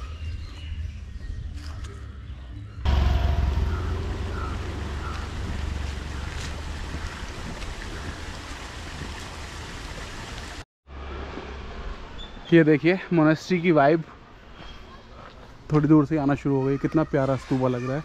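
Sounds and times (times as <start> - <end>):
wind buffeting microphone: 2.9 - 10.6.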